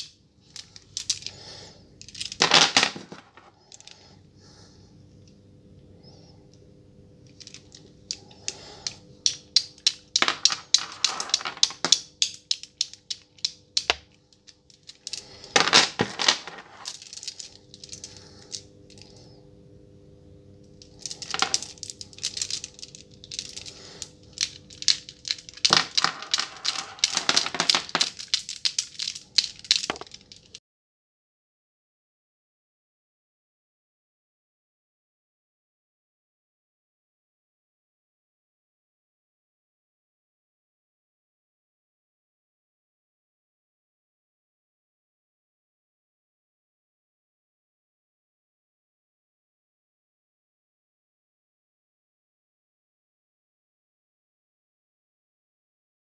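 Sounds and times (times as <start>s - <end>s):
prayer beads clicking: 0.0s - 4.2s, 7.2s - 19.4s, 20.7s - 30.6s.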